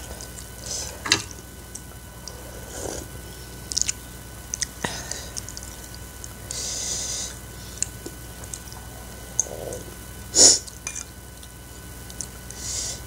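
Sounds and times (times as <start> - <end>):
slurping broth: 2.2 - 4.0.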